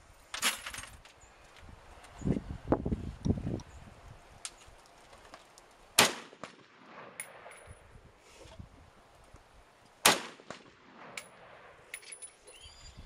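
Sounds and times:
rifle shots with echo: 0:06.0 - 0:07.7, 0:10.0 - 0:11.9.

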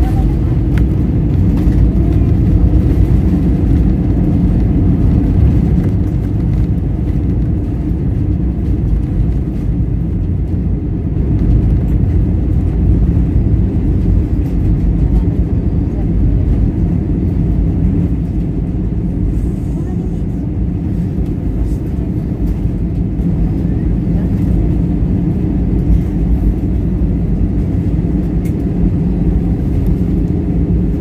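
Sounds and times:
jet cabin low rumble: 0:00.0 - 0:31.0.

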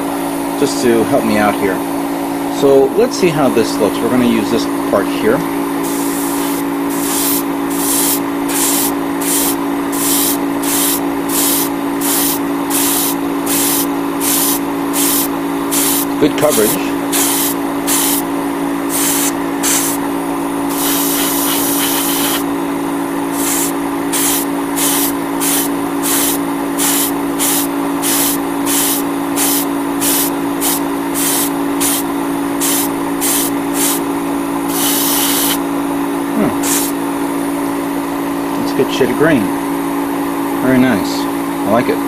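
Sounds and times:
steady motor hum: 0:00.0 - 0:42.0
airbrush spraying paint: 0:05.8 - 0:20.0, 0:20.7 - 0:22.5, 0:23.3 - 0:34.1, 0:34.7 - 0:35.6, 0:36.6 - 0:37.0.

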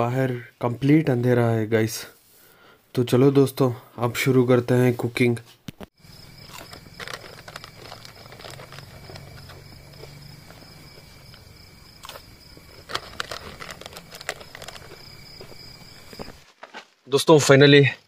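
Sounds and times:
packet rustling: 0:06.0 - 0:16.7
crickets trilling: 0:06.0 - 0:18.0.

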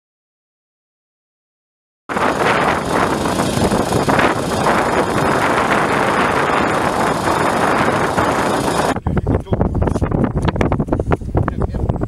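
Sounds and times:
engine water pump running: 0:02.1 - 0:09.0
wind on microphone: 0:02.1 - 0:12.0.

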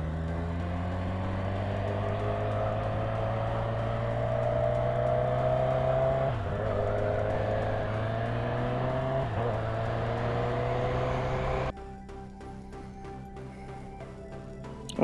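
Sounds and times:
motorcycle engine accelerating: 0:00.0 - 0:11.7.

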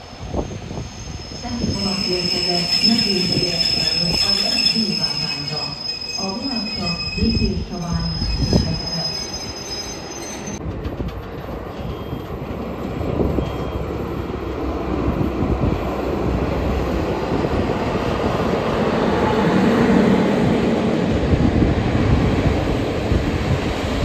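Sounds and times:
train wheels squealing: 0:00.3 - 0:10.6, 0:11.7 - 0:12.4, 0:13.4 - 0:13.9.

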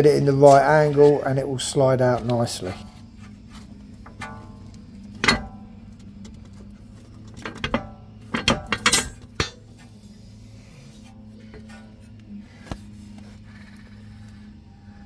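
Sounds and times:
metallic clanks of coil spring: 0:04.0 - 0:06.0, 0:07.2 - 0:09.9.

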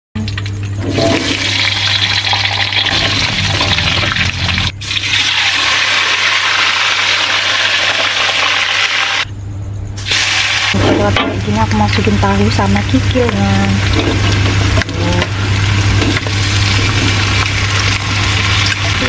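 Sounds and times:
oil sizzling in a wok: 0:00.9 - 0:09.3, 0:10.0 - 0:19.0
steady low hum: 0:09.2 - 0:19.0.

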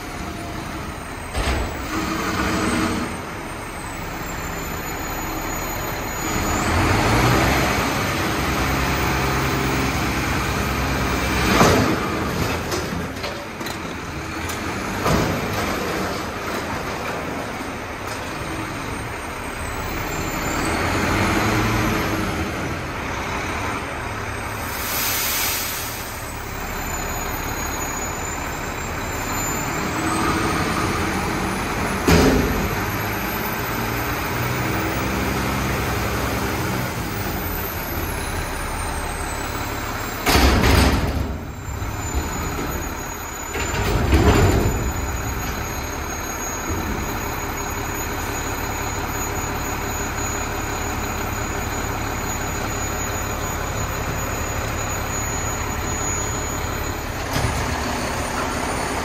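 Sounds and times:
garbage truck engine revving: 0:00.0 - 0:59.0
short hiss of air: 0:24.7 - 0:26.3
loud bangs of dumpster: 0:32.0 - 0:32.9, 0:40.2 - 0:42.5, 0:43.5 - 0:45.4.

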